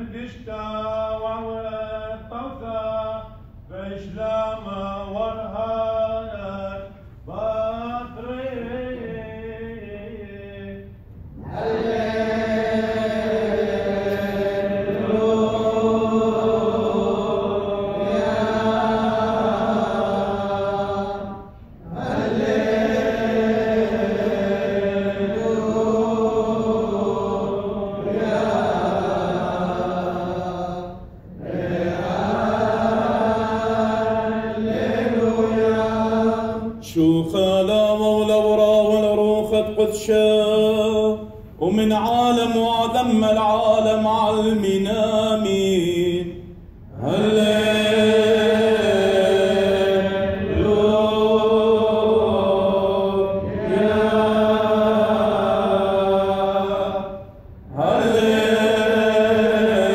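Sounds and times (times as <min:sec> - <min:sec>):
many voices chanting together: 0:00.0 - 0:59.9.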